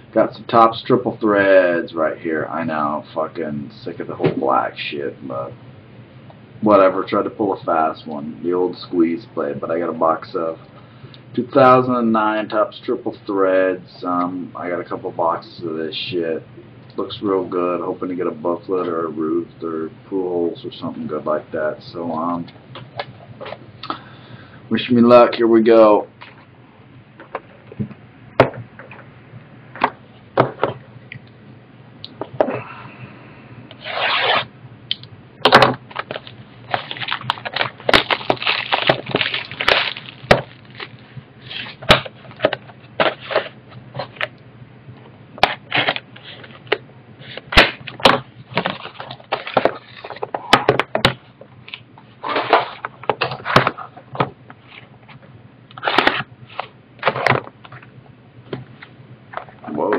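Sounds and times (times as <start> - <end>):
cardboard and packaging crackling: 35.9 - 44.2, 47.3 - 50.6.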